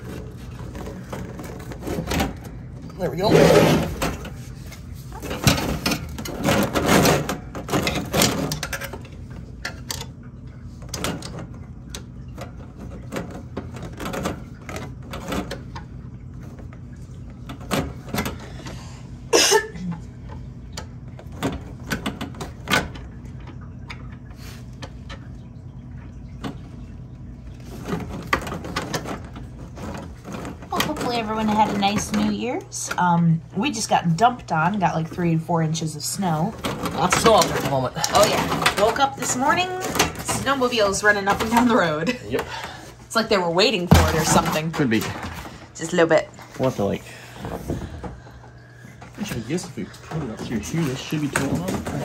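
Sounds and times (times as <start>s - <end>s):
plastic hoses and screwdriver rattling: 0.0s - 10.1s, 10.7s - 18.7s, 27.5s - 33.1s, 36.1s - 45.6s, 49.2s - 52.0s.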